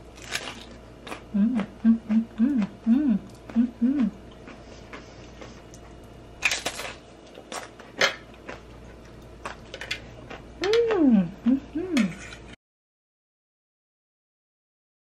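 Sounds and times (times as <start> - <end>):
crackles of chewing: 0.0 - 11.0
crunchy bite: 0.1 - 1.3
person humming mm: 1.3 - 4.2, 10.6 - 12.2.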